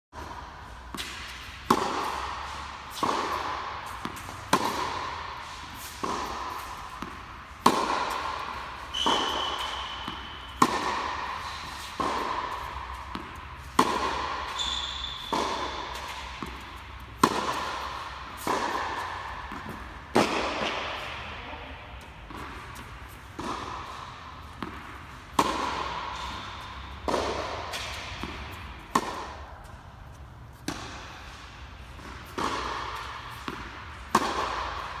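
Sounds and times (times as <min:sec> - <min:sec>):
tennis ball bouncing on court: 0:00.2 - 0:35.0
tennis ball struck by racket: 0:00.2 - 0:35.0
short high squeaks: 0:14.5 - 0:15.3.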